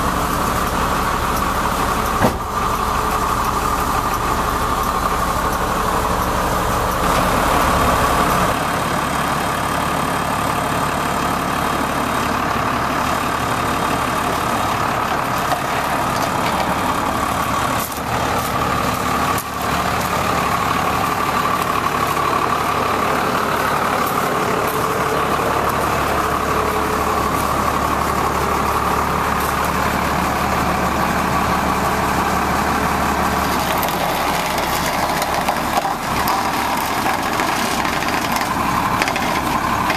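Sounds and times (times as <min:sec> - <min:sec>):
diesel truck engine idling: 0:00.0 - 0:39.9.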